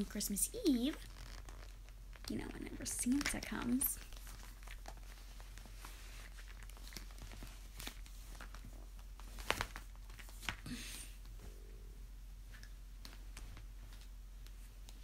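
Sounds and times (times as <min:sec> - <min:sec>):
fabric rustling: 0:00.0 - 0:10.6.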